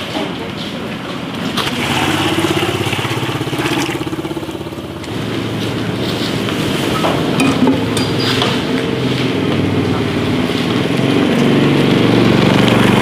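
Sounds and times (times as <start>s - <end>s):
hose water running into basin: 1.4s - 7.0s
motor running: 1.4s - 13.0s.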